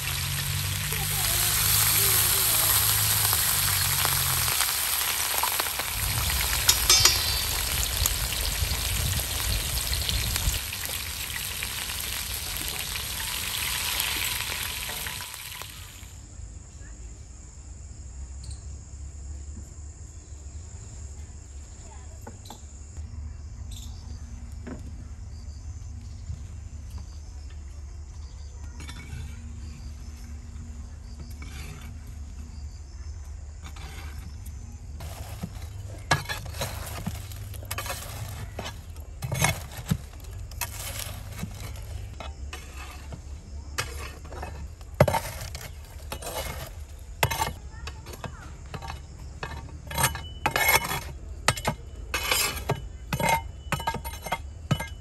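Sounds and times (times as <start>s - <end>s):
coals clinking: 0.0s - 16.1s, 35.0s - 47.6s, 48.3s - 55.0s
metal rod raking charcoal: 0.0s - 16.1s, 28.8s - 55.0s
insects chirring: 0.0s - 55.0s.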